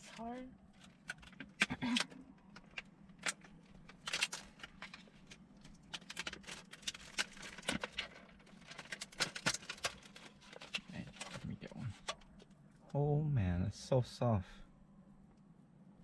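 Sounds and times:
faint steady hum: 0:00.0 - 0:16.0
plastic packaging crinkling: 0:00.7 - 0:12.3.

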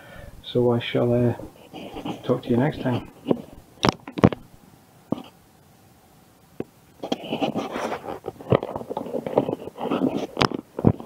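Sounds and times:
camera handling rustling and scraping: 0:01.7 - 0:04.5, 0:07.0 - 0:11.0.

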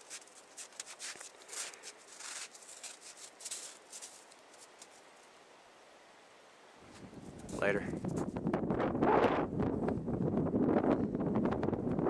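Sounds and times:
faint rustling: 0:00.0 - 0:05.3.

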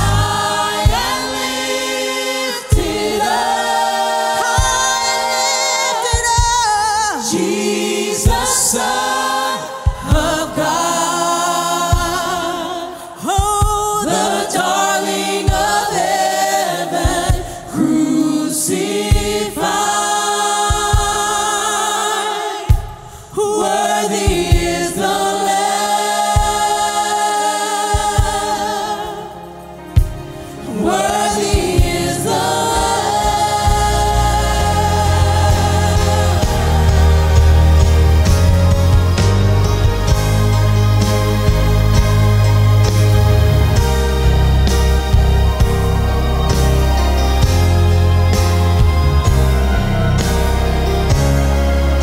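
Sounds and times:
heavy bass: 0:00.0 - 0:01.4, 0:31.5 - 0:52.0
low thudding accompaniment: 0:00.0 - 0:01.9, 0:29.9 - 0:52.0
choir singing gospel song: 0:00.0 - 0:52.0.

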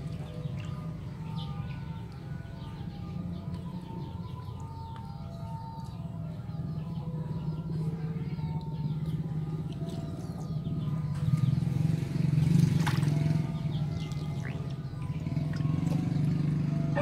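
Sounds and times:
low engine drone: 0:00.0 - 0:17.0
water splashing in a basin: 0:12.6 - 0:16.1.

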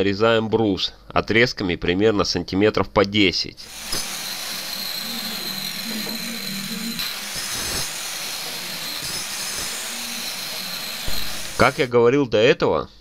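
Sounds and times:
circular saw cutting wood: 0:03.6 - 0:11.9.

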